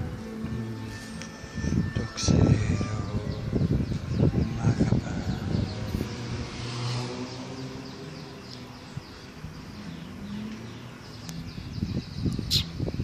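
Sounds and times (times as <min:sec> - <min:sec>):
soft low melody: 0:00.0 - 0:06.1
high bird chirps: 0:07.2 - 0:13.0.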